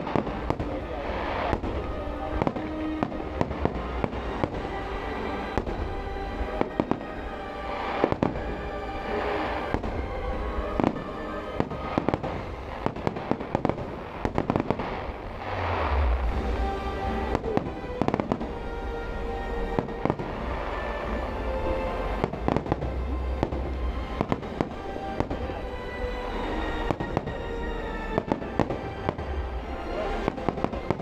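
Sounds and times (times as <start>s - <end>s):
fireworks bangs and crackles: 0.0s - 31.0s
music with long held notes: 0.0s - 31.0s
low rumble: 13.9s - 19.6s.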